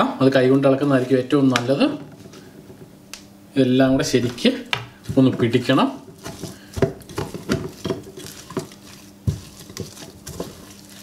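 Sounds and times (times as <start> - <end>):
hand squelching sticky dough: 4.0 - 11.0.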